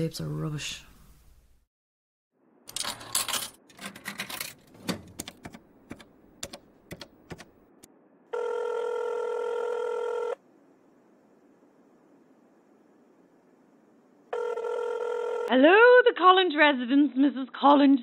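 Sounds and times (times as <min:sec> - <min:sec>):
payphone handling clatter: 0:02.7 - 0:06.0
telephone ringing tone: 0:08.3 - 0:10.4, 0:14.3 - 0:15.5.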